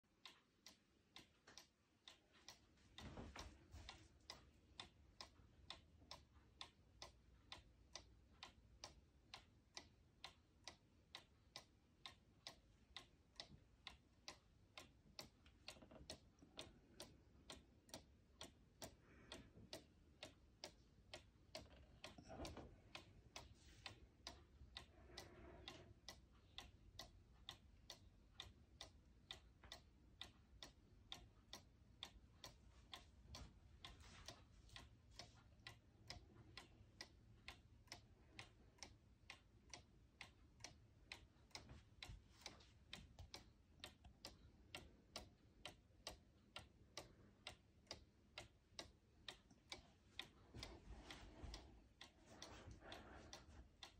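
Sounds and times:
clock ticking: 0:00.0 - 0:53.9.

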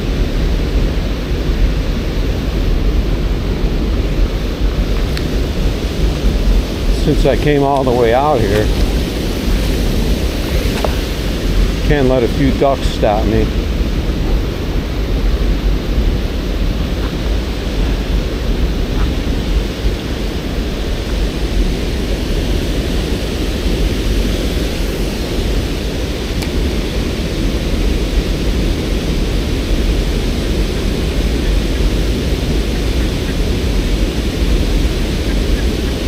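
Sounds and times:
deep rumble: 0:00.0 - 0:36.0
river white water rushing: 0:00.0 - 0:36.0.

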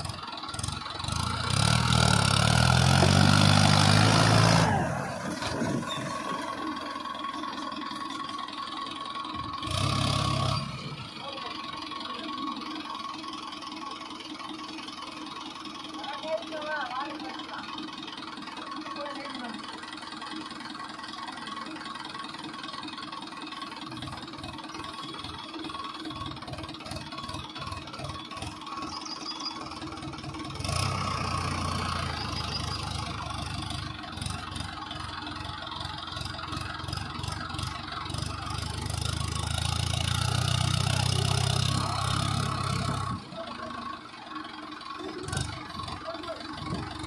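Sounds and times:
tractor diesel engine under load: 0:00.0 - 0:47.0.

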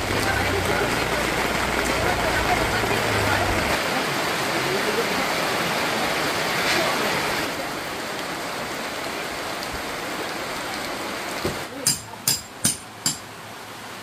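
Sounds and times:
rain falling: 0:00.0 - 0:14.0.

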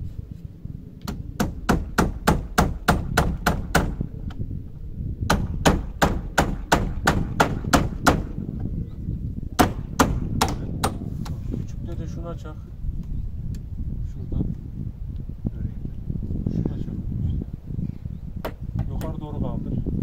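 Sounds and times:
hammer driving nails into wood: 0:01.0 - 0:04.0, 0:05.3 - 0:08.4, 0:09.6 - 0:11.4.

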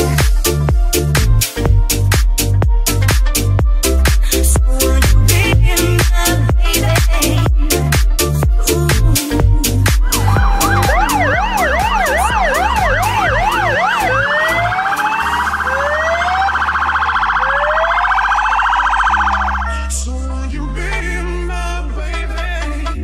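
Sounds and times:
background music: 0:00.0 - 0:23.0
fire engine sirens: 0:10.2 - 0:20.0.

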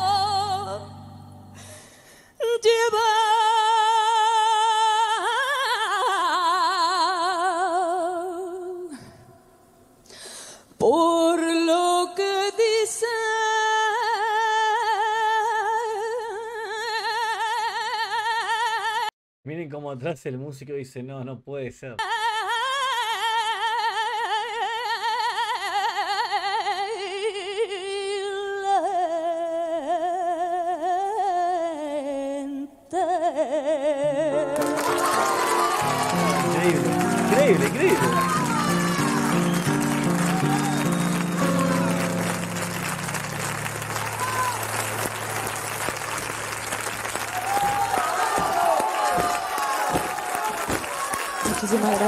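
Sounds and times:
woman singing long vibrato note: 0:00.0 - 0:09.0, 0:22.0 - 0:42.8
woman singing long note: 0:33.7 - 0:42.7.

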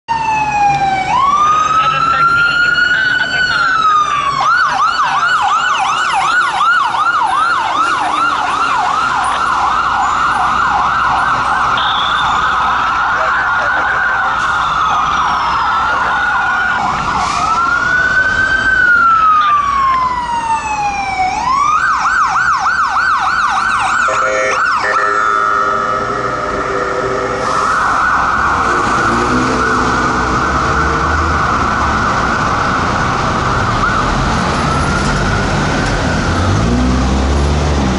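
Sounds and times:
emergency sirens yelping and wailing: 0:00.1 - 0:37.9
horn blast: 0:24.0 - 0:30.2.

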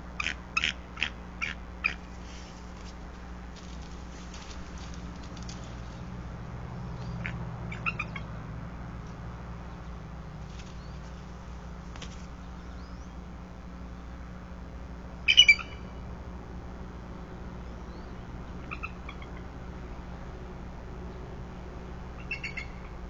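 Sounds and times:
steady low hum: 0:00.0 - 0:23.0
twig rustles and clicks: 0:02.0 - 0:06.2, 0:10.4 - 0:12.5
sharp high bird call: 0:15.3 - 0:16.0.

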